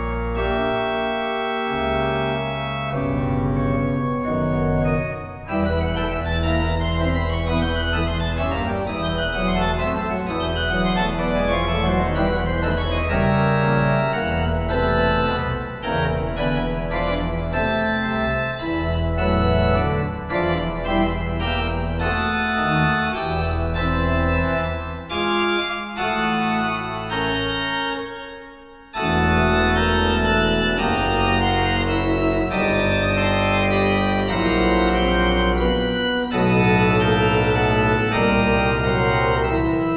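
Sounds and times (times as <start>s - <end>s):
pipe organ playing chords: 0.0s - 39.9s.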